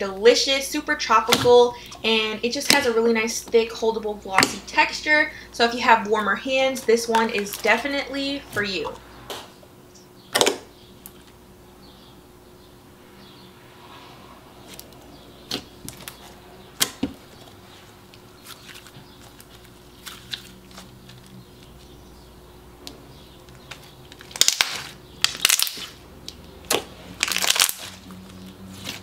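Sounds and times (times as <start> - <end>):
slime crackling: 18.3 - 21.8, 23.7 - 26.0, 26.6 - 29.0.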